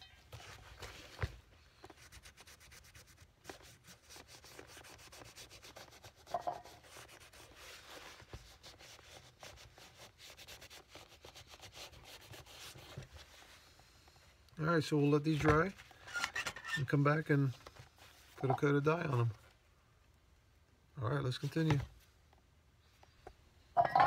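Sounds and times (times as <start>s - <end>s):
hand rubbing leather shoe: 1.8s - 13.6s.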